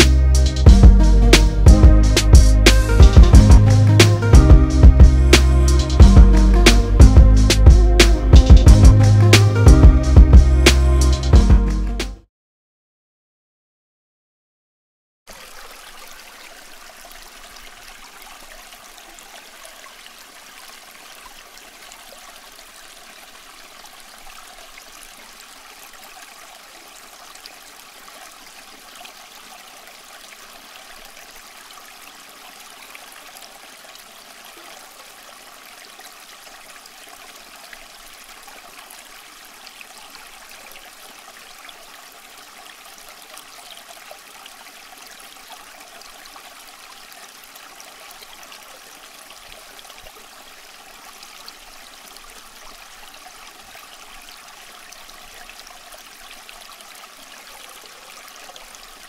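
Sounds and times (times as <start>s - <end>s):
fountain water trickling: 15.3s - 59.0s.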